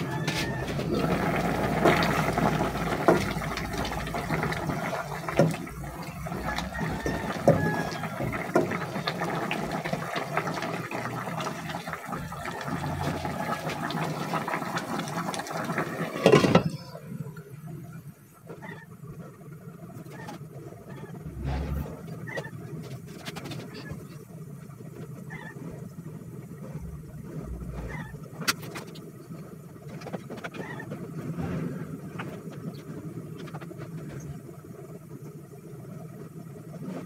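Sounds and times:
stew bubbling in a pot: 0.0 - 37.0
glass lid clattering onto pot: 16.2 - 16.7.

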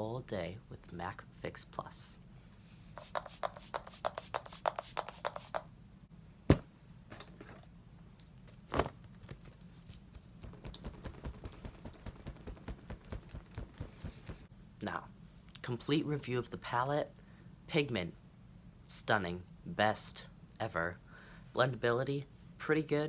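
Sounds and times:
hand fan fluttering: 9.2 - 14.5.

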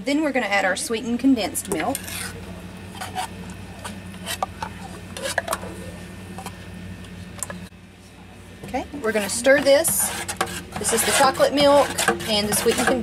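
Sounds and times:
steady low hum: 0.0 - 13.0
metal spoon scraping tin can: 9.1 - 13.0.

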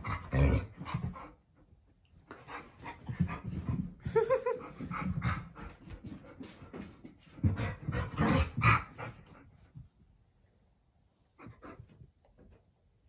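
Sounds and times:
dogs breathing and scuffling: 0.0 - 10.1.

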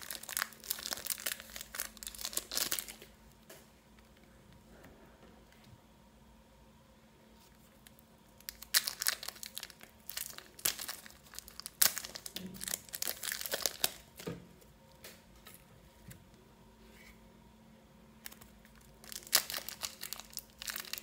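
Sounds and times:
plastic packaging crinkling: 0.0 - 3.2, 7.5 - 14.4, 18.2 - 21.0.

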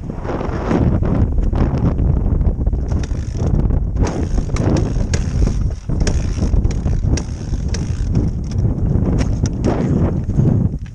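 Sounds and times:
microphone handling rumble: 0.0 - 10.9
wind on microphone: 0.0 - 10.9.

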